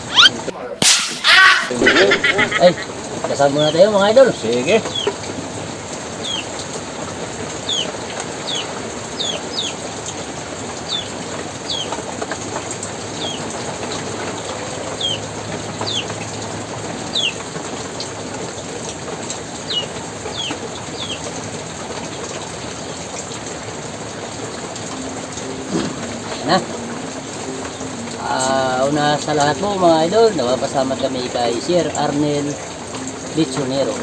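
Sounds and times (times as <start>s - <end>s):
small bird chirping: 0.0s - 0.4s, 4.8s - 5.2s, 6.2s - 6.5s, 7.6s - 9.8s, 10.8s - 12.0s, 13.1s - 13.5s, 14.8s - 16.1s, 17.1s - 17.4s, 19.6s - 21.3s
steady rain: 0.0s - 34.0s.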